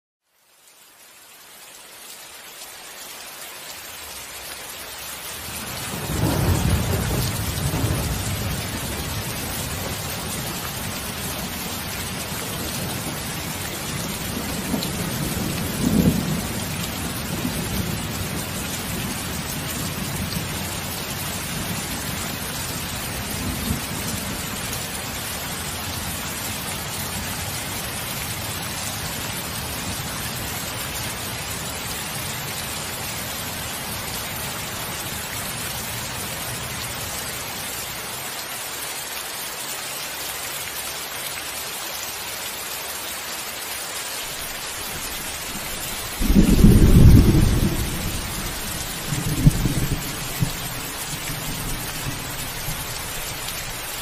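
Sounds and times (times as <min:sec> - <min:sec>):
steady rain: 0:00.2 - 0:54.0
thunder rumbling: 0:05.8 - 0:11.5, 0:45.0 - 0:52.9.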